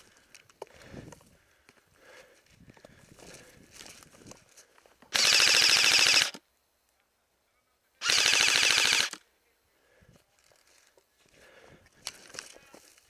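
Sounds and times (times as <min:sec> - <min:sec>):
airsoft rifle bursts: 0:05.1 - 0:06.4, 0:08.0 - 0:09.2.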